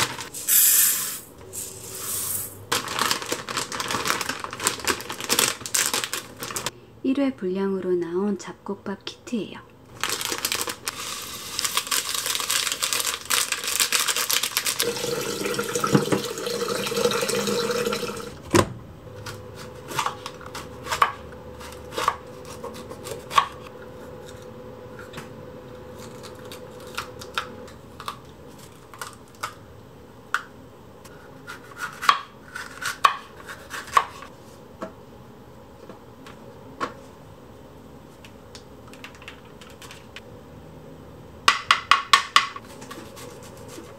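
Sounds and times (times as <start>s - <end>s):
plastic packet rustling: 0.0s - 0.4s, 2.7s - 6.7s, 9.9s - 15.8s.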